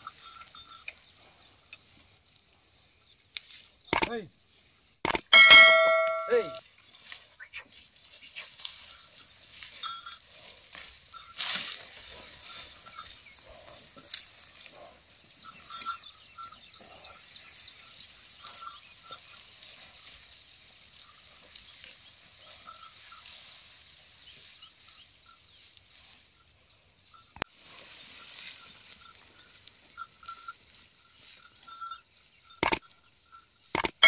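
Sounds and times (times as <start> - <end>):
small ticks and crackles: 0.0 - 4.6, 6.7 - 16.0, 17.6 - 25.0
hooves: 0.0 - 34.0.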